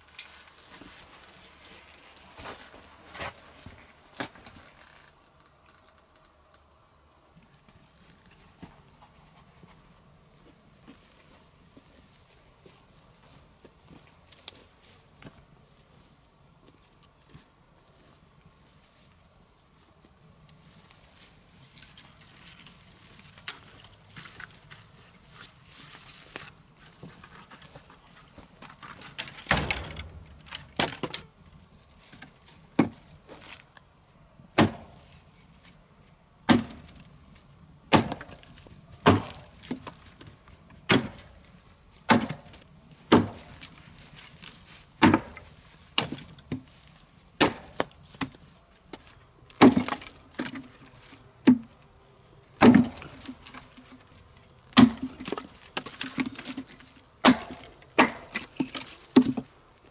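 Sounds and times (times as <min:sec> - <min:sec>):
axe chopping wood: 0:34.6 - 0:35.0, 0:36.5 - 0:37.0, 0:37.9 - 0:39.9, 0:40.8 - 0:41.4, 0:42.0 - 0:43.6, 0:45.0 - 0:46.6, 0:47.4 - 0:48.3, 0:49.6 - 0:50.6, 0:52.6 - 0:53.3, 0:54.7 - 0:56.5, 0:57.2 - 0:59.4.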